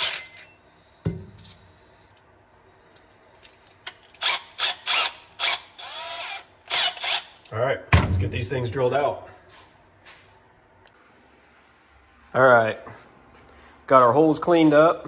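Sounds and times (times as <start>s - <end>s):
power drill whirring: 4.1s - 7.4s.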